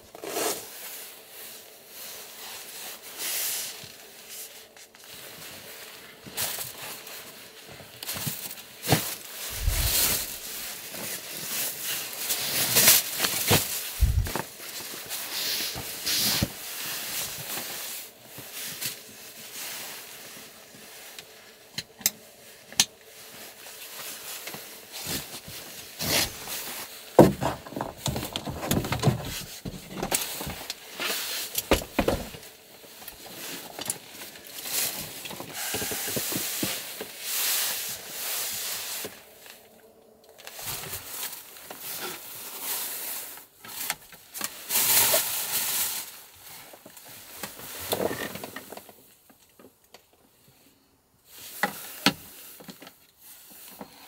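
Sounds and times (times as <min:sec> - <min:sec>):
objects rustling and knocking: 0:07.6 - 0:19.2, 0:22.7 - 0:38.2.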